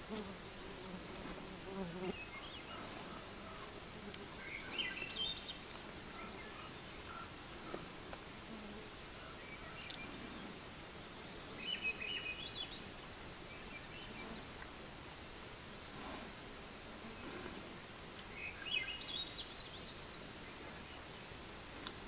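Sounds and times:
outdoor background hiss: 0.0s - 22.0s
songbird singing: 1.7s - 14.7s, 18.2s - 22.0s.

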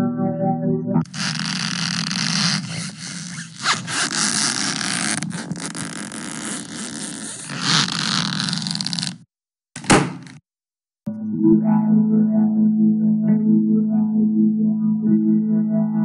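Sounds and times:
harsh scratching noise: 1.0s - 9.2s.

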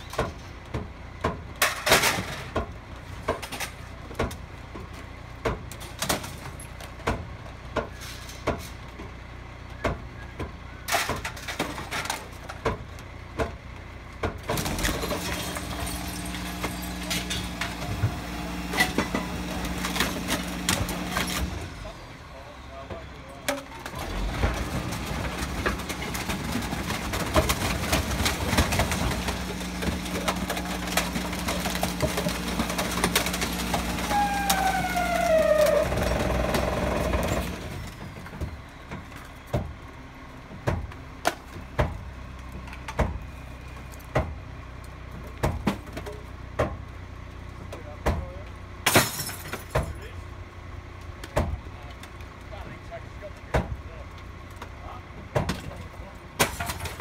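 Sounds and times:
garbage truck engine: 0.0s - 57.0s
rubbish cracking and snapping: 10.8s - 21.7s, 23.0s - 39.8s, 53.3s - 57.0s
junk knocking and clattering: 22.9s - 43.3s
descending squeal: 34.0s - 36.2s.

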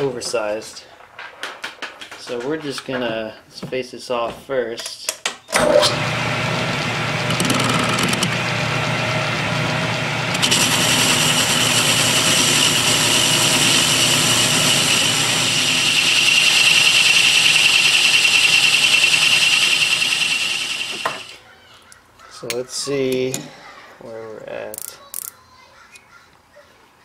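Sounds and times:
metal lathe running: 5.6s - 21.4s.

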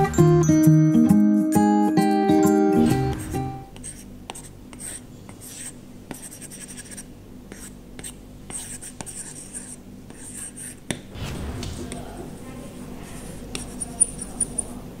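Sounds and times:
stylus scratching on screen: 3.2s - 14.7s.

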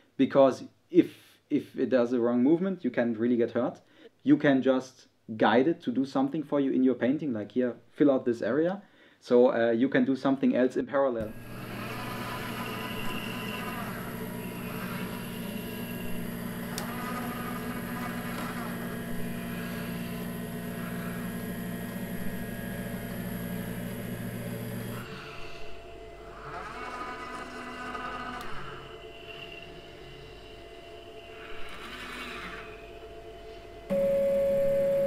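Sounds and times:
robotic arm motors whirring: 11.2s - 33.7s
electrical hum: 11.2s - 35.0s.

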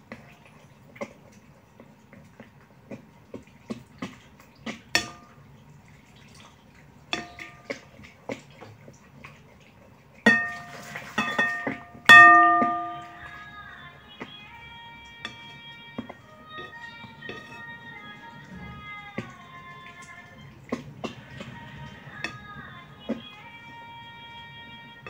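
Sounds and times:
glass bowl ringing: 10.3s - 13.4s
utensil stirring in glass bowl: 15.1s - 23.8s.

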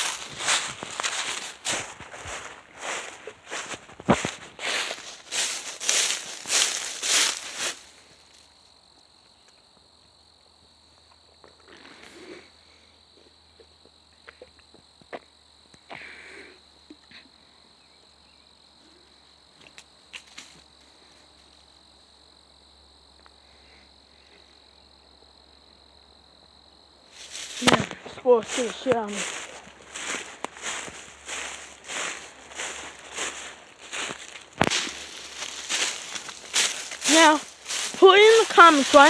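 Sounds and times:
footsteps crunching dry leaves: 0.0s - 8.5s, 27.1s - 39.0s
rustles: 0.0s - 8.8s, 19.6s - 21.8s, 27.1s - 39.0s
high insect drone: 0.0s - 39.0s.

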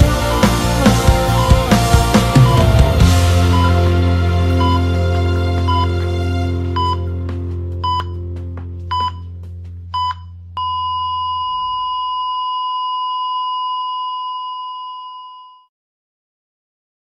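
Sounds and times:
low music chord: 0.0s - 9.9s
heart monitor beeps: 2.4s - 3.8s, 6.8s - 7.1s, 7.8s - 8.2s, 8.9s - 9.3s, 9.9s - 15.7s.

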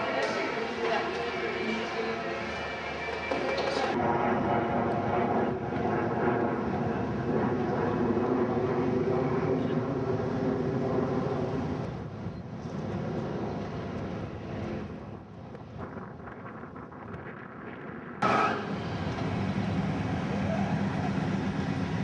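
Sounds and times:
engine drone: 18.2s - 22.0s.

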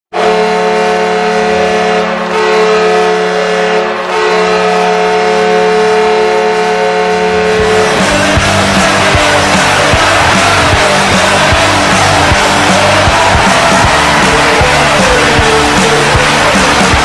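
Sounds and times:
arena goal horn blast: 0.1s - 17.0s
goal song music: 0.2s - 17.0s.

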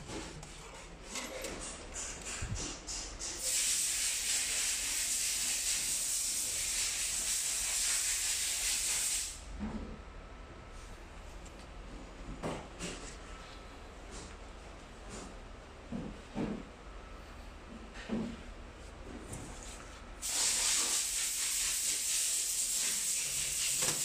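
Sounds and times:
loud steady hiss: 3.2s - 9.4s, 20.2s - 24.0s.

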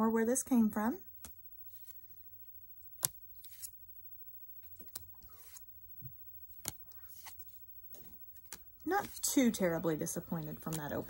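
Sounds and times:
cards rustling: 1.2s - 2.2s, 3.0s - 3.8s, 4.6s - 5.7s, 6.5s - 11.0s
card edges clicking: 6.5s - 7.4s, 8.0s - 9.3s, 10.4s - 11.0s.

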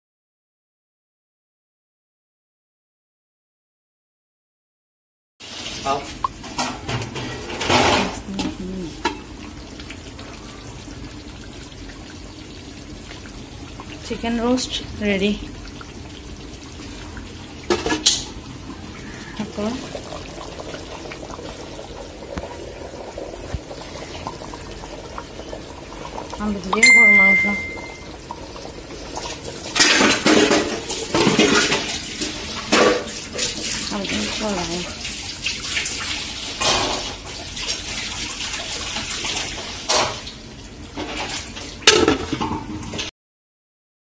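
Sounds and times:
liquid boiling in pot: 5.4s - 43.1s
cooking pot and lid clanking: 41.9s - 42.9s.

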